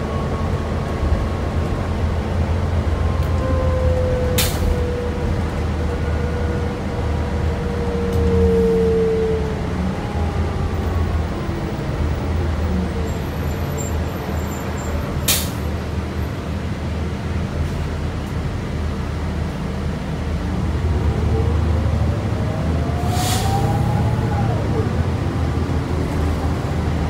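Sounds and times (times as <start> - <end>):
bus engine hum: 0.0 - 27.0
air brake hiss: 15.3 - 15.6, 23.1 - 23.7.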